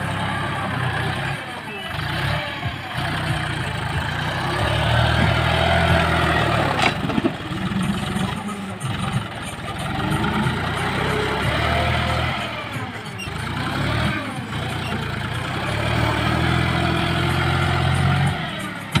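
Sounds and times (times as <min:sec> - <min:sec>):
tractor diesel engine running hard: 0:00.0 - 0:19.0.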